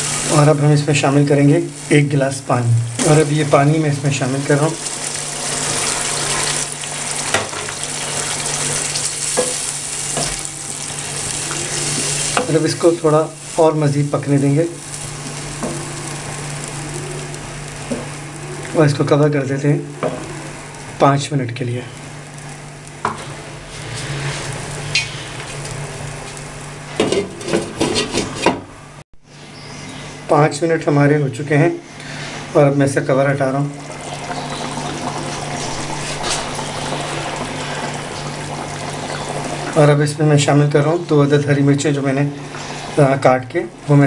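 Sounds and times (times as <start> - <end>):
water sizzling in hot pan: 0.0 - 18.8, 22.0 - 27.8, 33.6 - 43.2.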